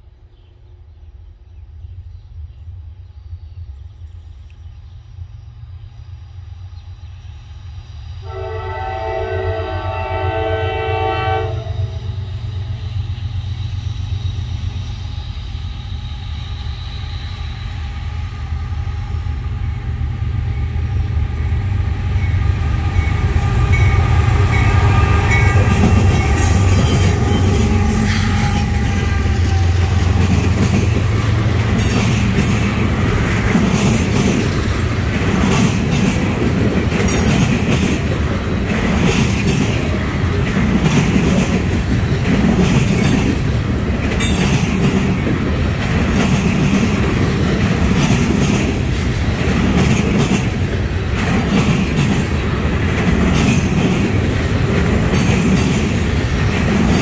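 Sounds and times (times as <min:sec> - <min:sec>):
train horn blast: 0:08.2 - 0:12.1, 0:22.8 - 0:30.2
locomotive engine rumble: 0:11.8 - 0:57.0
train wheels clacking on rails: 0:12.6 - 0:57.0.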